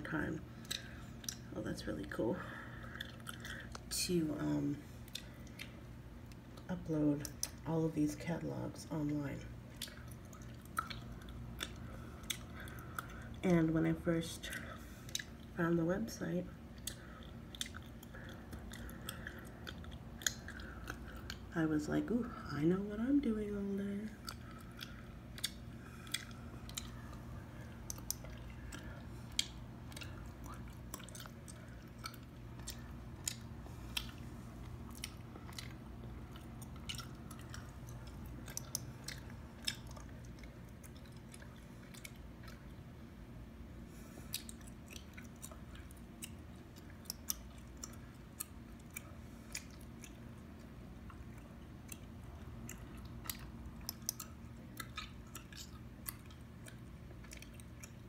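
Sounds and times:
gum chewing clicks and smacks: 0.5 - 7.7, 9.0 - 13.5, 14.4 - 15.6, 16.5 - 22.2, 23.0 - 58.0.

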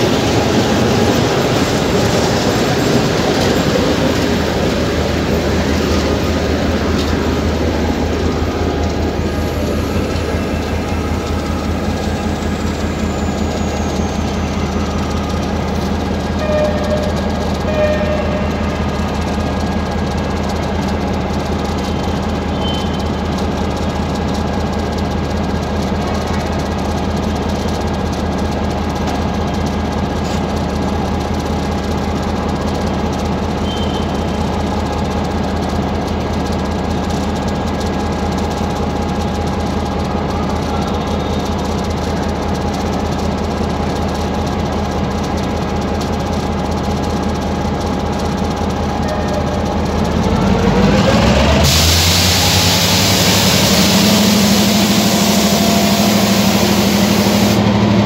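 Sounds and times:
locomotive engine droning: 0.0 - 58.0
loud hiss: 51.6 - 57.6.

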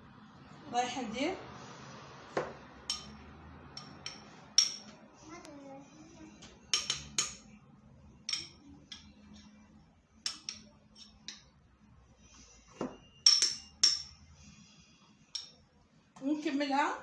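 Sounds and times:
metal spoon clinking against bowl: 2.8 - 4.9, 6.7 - 7.5, 8.2 - 9.6, 10.2 - 11.6, 13.1 - 14.2, 15.3 - 15.6.

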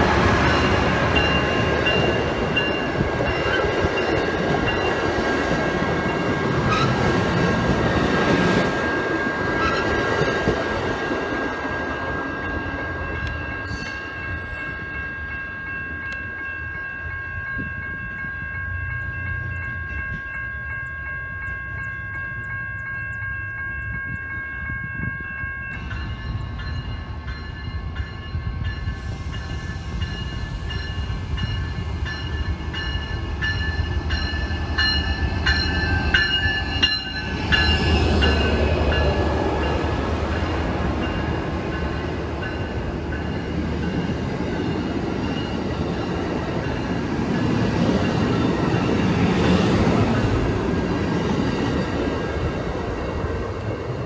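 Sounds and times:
train cars rumbling on rails: 0.0 - 54.0
steady high ringing tones: 8.6 - 50.8.

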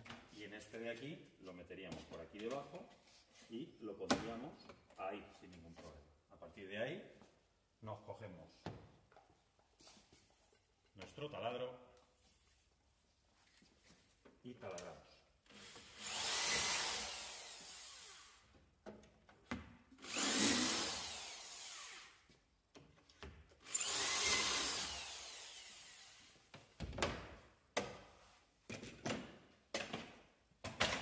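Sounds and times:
electric drill boring into chipboard: 15.5 - 18.4, 20.0 - 22.2, 23.6 - 26.3.

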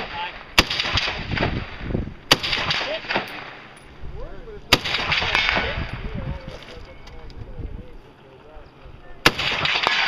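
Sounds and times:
rifle shots echoing: 0.0 - 3.8, 4.7 - 6.0, 9.2 - 10.0.

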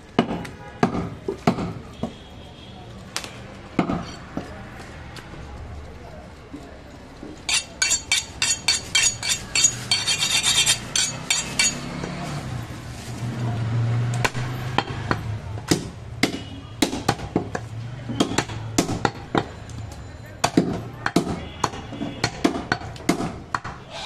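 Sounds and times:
steel blades clinking: 7.5 - 11.8
cleaver chopping into wood: 14.2 - 17.6.

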